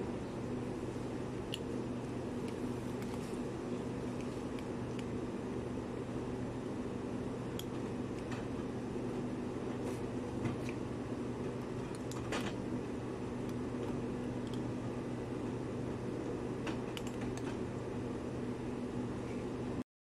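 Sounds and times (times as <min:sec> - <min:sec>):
low machine hum: 0:00.0 - 0:19.8.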